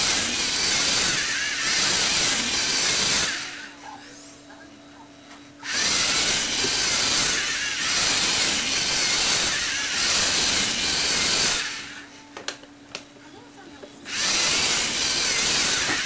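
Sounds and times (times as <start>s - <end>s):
plastic gears grinding whir: 0.0s - 3.7s, 5.6s - 12.1s, 14.1s - 16.0s.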